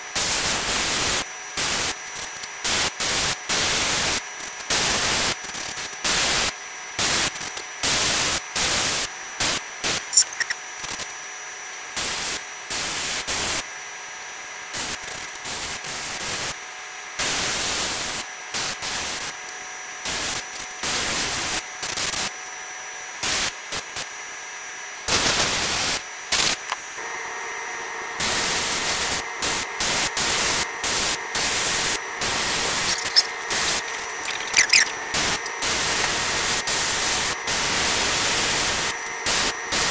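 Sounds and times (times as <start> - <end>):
airbrush spraying hissing bursts: 28.2 - 39.9.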